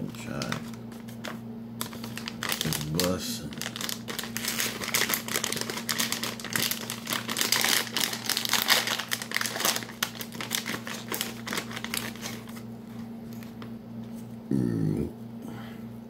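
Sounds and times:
chip bag crinkling: 0.0s - 13.8s.

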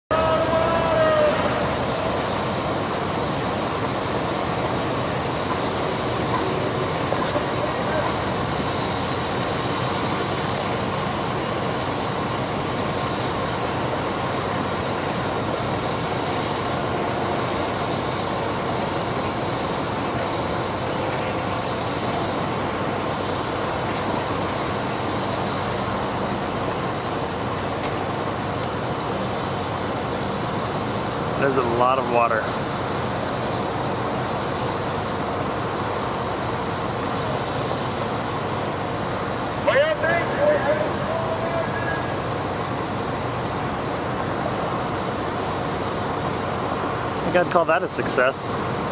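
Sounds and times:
fire truck pump running: 0.1s - 48.9s
crowd chattering: 5.5s - 8.5s.

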